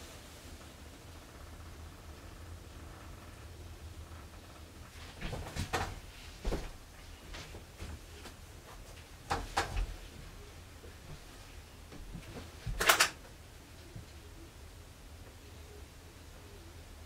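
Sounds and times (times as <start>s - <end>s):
door opening clicks and knocks: 9.3s - 9.9s, 12.7s - 13.2s.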